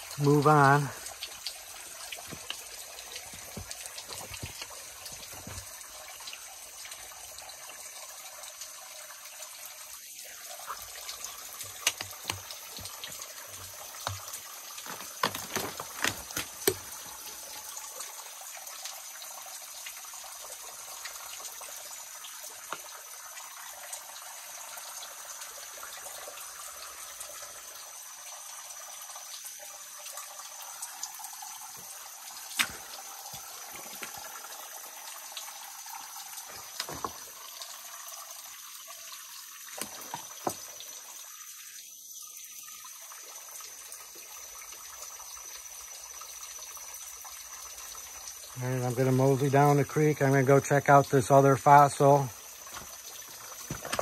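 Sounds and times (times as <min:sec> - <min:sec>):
water trickling into a pool: 0:00.0 - 0:54.0
sharp clicks and knocks: 0:11.6 - 0:13.2, 0:14.0 - 0:16.9.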